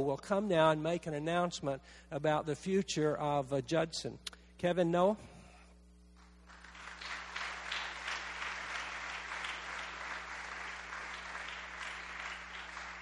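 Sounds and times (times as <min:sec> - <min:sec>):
faint electrical hum: 0:00.0 - 0:13.0
audience applauding: 0:06.5 - 0:13.0.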